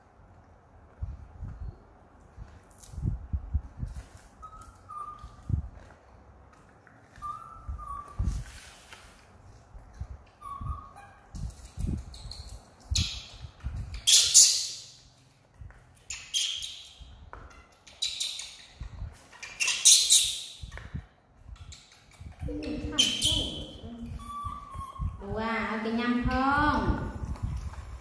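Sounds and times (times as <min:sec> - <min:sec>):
monkeys squealing and squawking: 0:10.4 - 0:11.3, 0:13.0 - 0:14.8, 0:16.1 - 0:20.7, 0:21.6 - 0:25.2.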